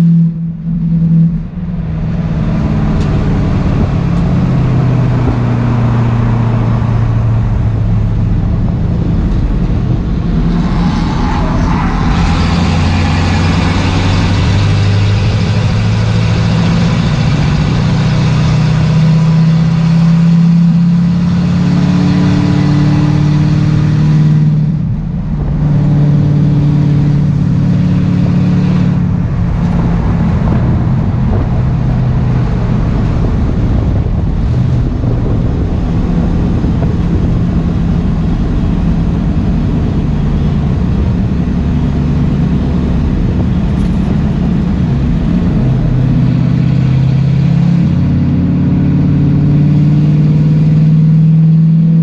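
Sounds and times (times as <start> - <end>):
race car engine under load: 0.0 - 52.0.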